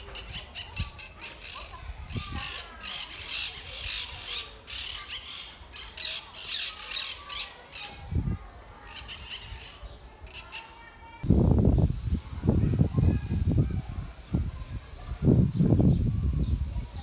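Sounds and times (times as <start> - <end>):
parakeets squawking: 0.0 - 8.0.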